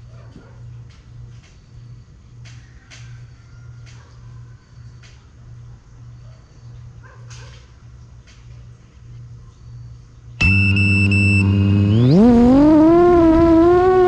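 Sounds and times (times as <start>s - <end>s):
quadcopter motors whining: 10.4s - 14.0s.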